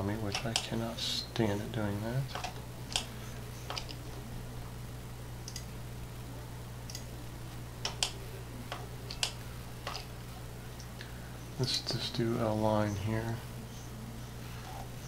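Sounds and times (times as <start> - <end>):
low electrical hum: 0.0 - 15.0
computer mouse clicks: 0.3 - 0.7, 2.3 - 4.0, 5.4 - 5.7, 6.8 - 7.1, 7.8 - 10.1.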